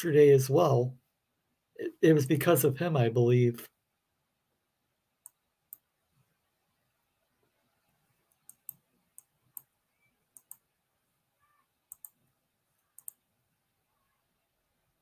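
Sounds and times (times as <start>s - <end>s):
faint computer clicks: 8.3s - 9.7s, 10.3s - 10.6s, 11.9s - 12.2s, 12.8s - 13.2s.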